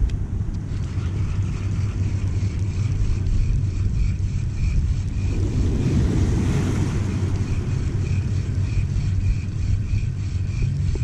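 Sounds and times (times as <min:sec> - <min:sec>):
wind buffeting microphone: 0:00.0 - 0:11.0
faint high ticking: 0:00.5 - 0:11.0
small waves washing over rocks: 0:05.2 - 0:08.9.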